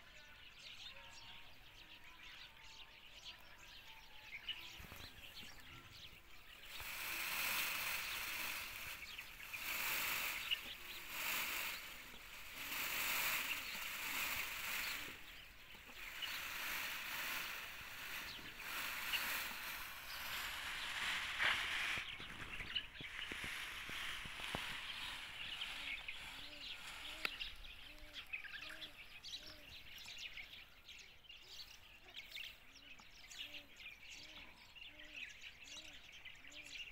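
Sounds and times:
faint bird chirps: 0.0s - 36.9s
loud rustling hiss: 4.6s - 30.3s.

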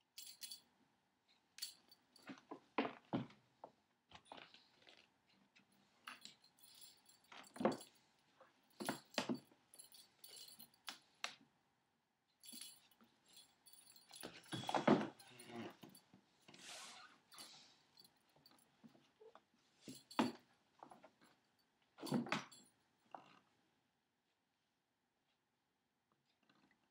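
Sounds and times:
toy jingling rattles: 0.2s - 0.6s, 6.1s - 7.9s, 8.8s - 10.7s, 12.4s - 16.0s.

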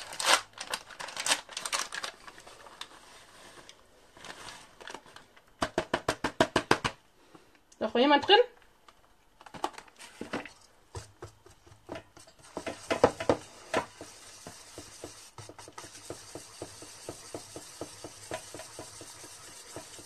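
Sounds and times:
whisk clicking in metal bowl: 11.2s - 20.0s.

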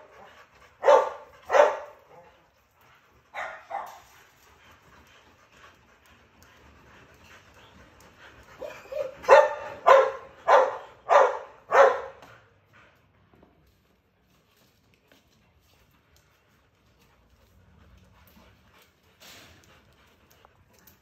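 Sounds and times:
dog barking: 0.8s - 2.2s, 3.4s - 4.0s, 8.6s - 12.2s.

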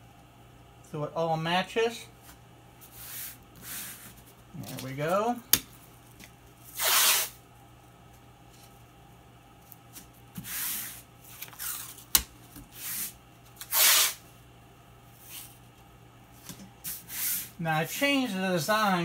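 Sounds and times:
tape ripping off roll: 6.8s - 7.4s, 13.6s - 14.2s.

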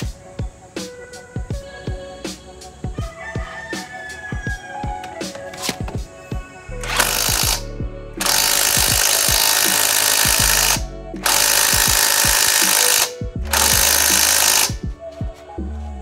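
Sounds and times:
background music: 0.0s - 16.0s
impact wrench hammering: 6.8s - 14.8s.

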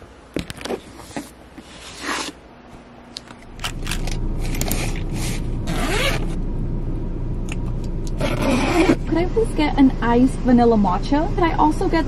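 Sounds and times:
zipper-like scrapes and rustles: 1.0s - 2.4s, 4.4s - 6.4s, 8.2s - 9.0s
car cabin hum: 3.5s - 12.0s.

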